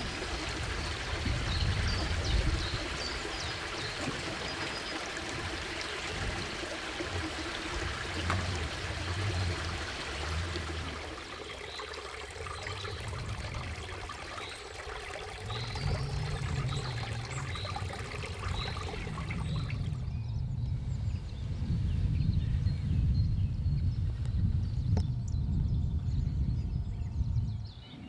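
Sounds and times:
running water rushing: 0.0 - 20.2
low rumble: 15.4 - 27.8.

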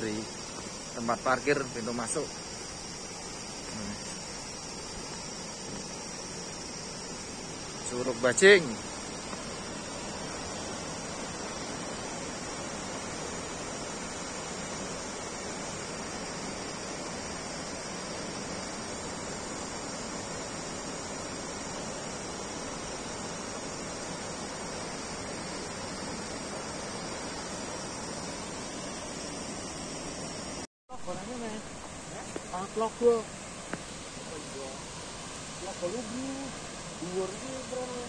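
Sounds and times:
distant waterfall rushing: 0.0 - 38.0
high insect drone: 0.0 - 38.0.

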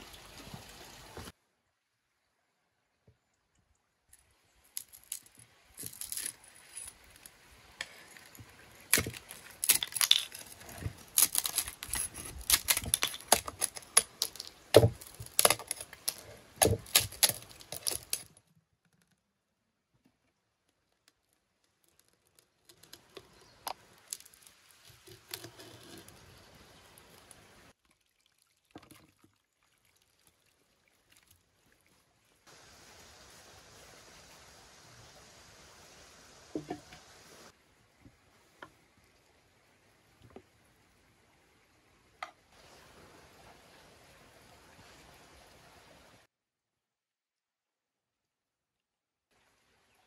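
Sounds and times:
crust cracking: 4.7 - 18.4, 21.0 - 26.1.

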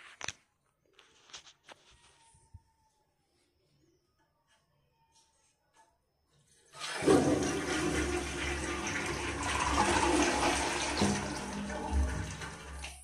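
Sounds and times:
toilet water rushing: 6.8 - 13.0.

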